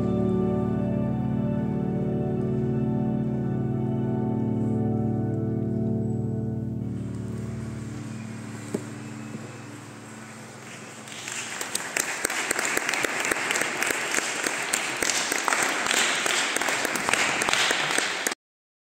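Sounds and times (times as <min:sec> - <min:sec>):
music: 0:00.0 - 0:11.9
audience applause: 0:10.1 - 0:18.4.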